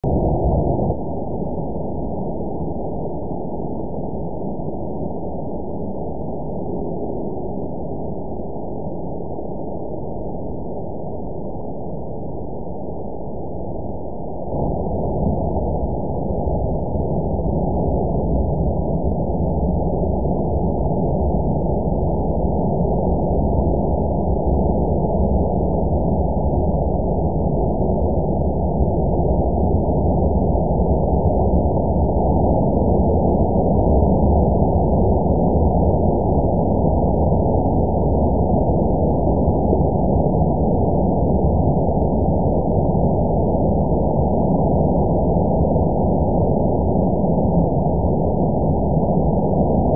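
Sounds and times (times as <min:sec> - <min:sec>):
muffled rumbling: 0:00.0 - 0:08.1.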